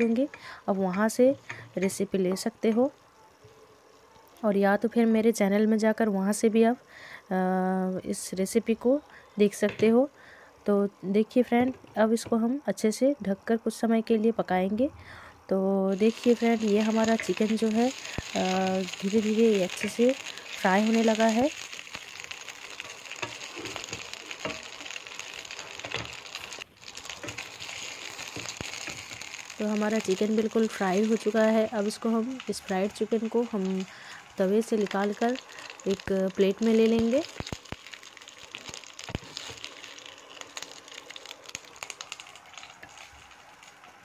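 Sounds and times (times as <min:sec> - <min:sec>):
chicken frying in oil: 0:15.9 - 0:44.0
oil popping and crackling: 0:15.9 - 0:44.0.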